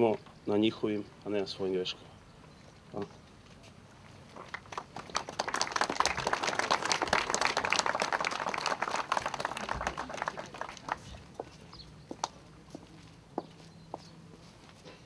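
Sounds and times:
crowd applauding: 4.5s - 11.2s.

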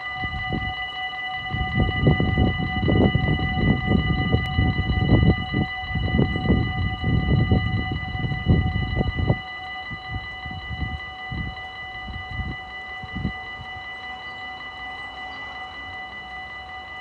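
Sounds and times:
level crossing warning bell: 0.0s - 17.0s
gusting low rumble: 1.4s - 13.7s.

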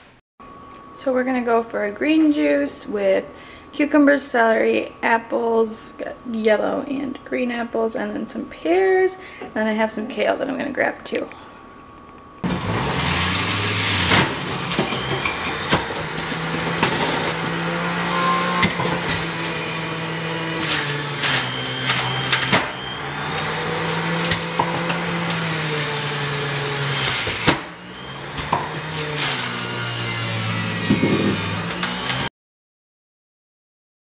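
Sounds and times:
fruit crunching in juicer: 12.4s - 32.3s
juicer motor hum: 12.4s - 32.3s.

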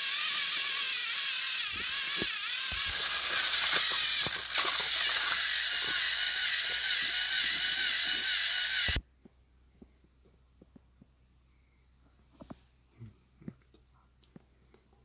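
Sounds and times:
toy train motors whirring: 0.0s - 9.0s
clicks from wheels and plastic track: 1.6s - 9.0s.

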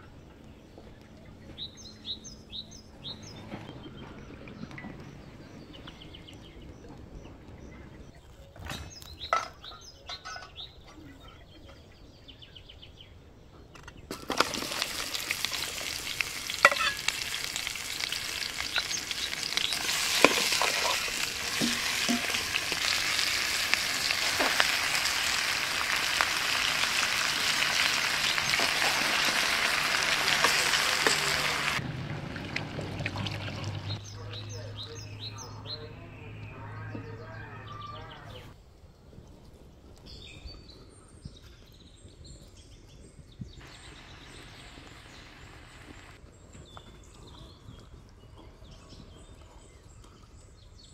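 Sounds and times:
onions sizzling in hot oil: 14.2s - 31.8s
metal ladle clinking: 16.6s - 17.3s.

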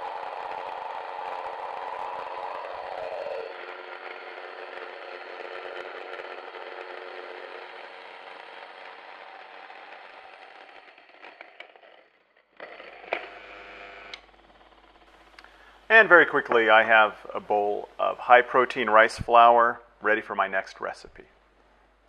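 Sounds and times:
grain mill motor whir: 0.0s - 15.9s.

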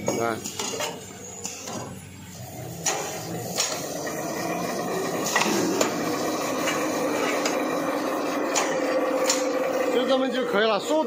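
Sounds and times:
machine whirring: 0.0s - 11.0s.

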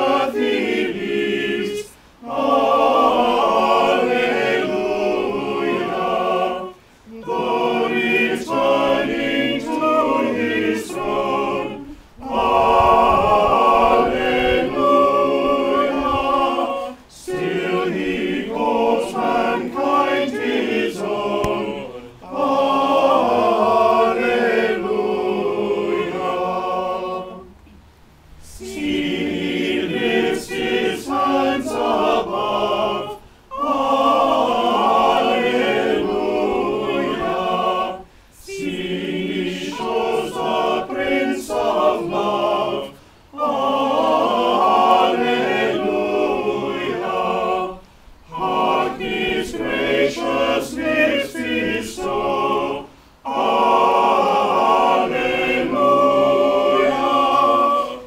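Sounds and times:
small choir singing unaccompanied: 0.0s - 58.0s.

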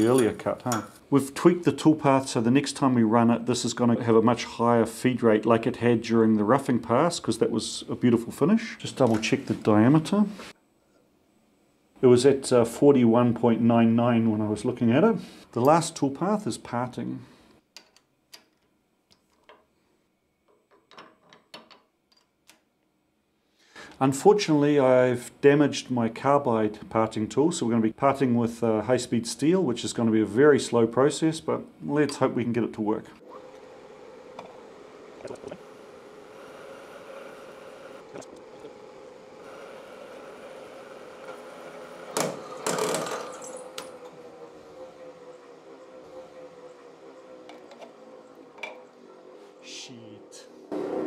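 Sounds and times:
lathe spindle humming: 33.2s - 49.7s.

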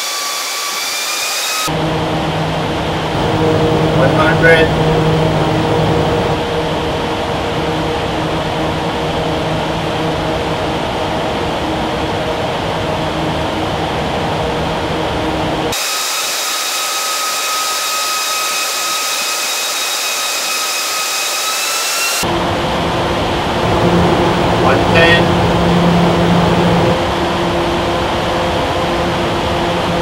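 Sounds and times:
high whine over hiss: 0.0s - 30.0s
low hum: 1.7s - 15.7s, 22.2s - 30.0s
loud steady rush of wind: 1.7s - 15.8s, 22.2s - 30.0s.

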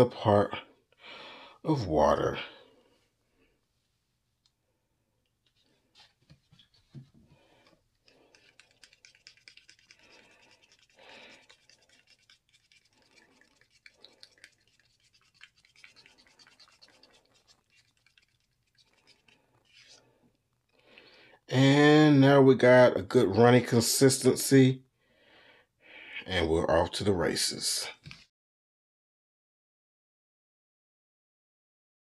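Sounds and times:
plastic spoon stirring paint: 5.2s - 20.5s, 27.9s - 28.3s.

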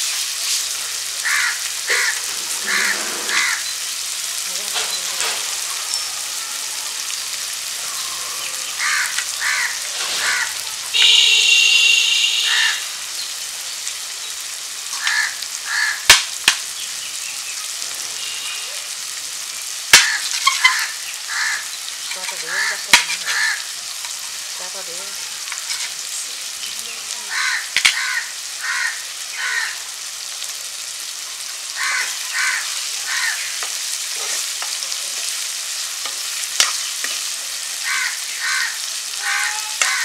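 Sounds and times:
frying oil sizzling: 0.0s - 40.0s
crows cawing: 1.2s - 3.7s, 5.3s - 13.0s, 14.9s - 16.2s, 19.9s - 24.0s, 27.2s - 30.0s, 31.6s - 34.0s, 37.6s - 40.0s
metal spatula scraping ceramic plate: 2.7s - 3.4s, 23.0s - 23.4s, 25.6s - 26.0s.

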